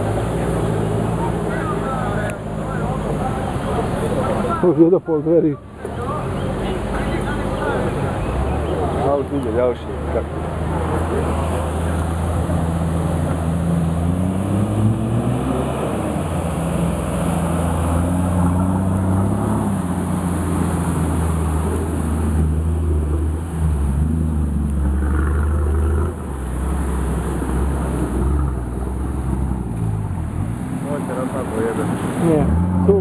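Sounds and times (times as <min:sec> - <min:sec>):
engine revving under load: 0:10.2 - 0:33.0.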